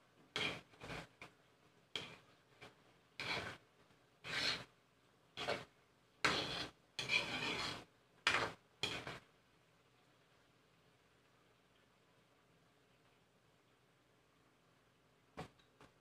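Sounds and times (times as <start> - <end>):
spatula scraping a pan: 0.3 - 3.6, 4.2 - 4.8, 5.4 - 9.2.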